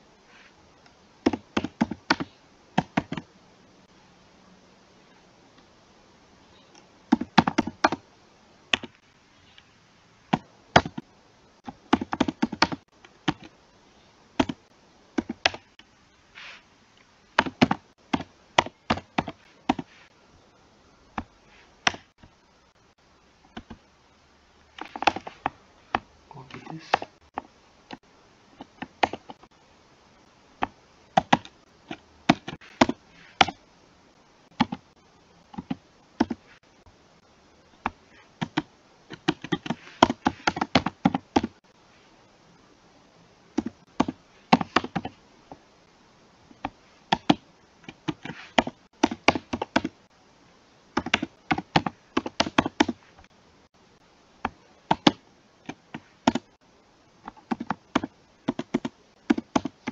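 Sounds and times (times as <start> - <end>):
keyboard typing: 1.2 - 3.3, 6.7 - 8.0, 8.7 - 9.0, 10.3 - 13.6, 14.4 - 14.6, 15.2 - 15.8, 17.4 - 19.9, 23.5 - 23.8, 24.8 - 28.0, 28.6 - 29.5, 30.6 - 33.6, 34.5 - 34.9, 35.5 - 36.5, 37.8 - 41.6, 43.6 - 45.2, 46.5 - 50.0, 51.0 - 53.0, 54.4 - 56.5, 57.2 - 59.9.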